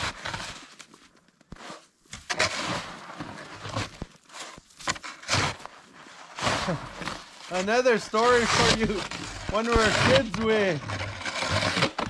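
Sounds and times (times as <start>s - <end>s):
snow shovel scraping snow: 0.0s - 12.0s.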